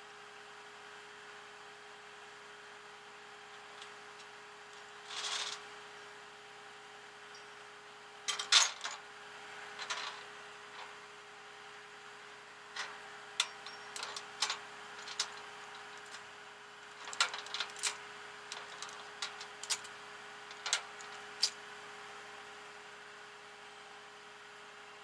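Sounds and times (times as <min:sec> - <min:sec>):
steady hum: 0:07.0 - 0:22.2
metal hardware clinking: 0:08.3 - 0:09.0, 0:12.8 - 0:16.2, 0:17.0 - 0:21.6.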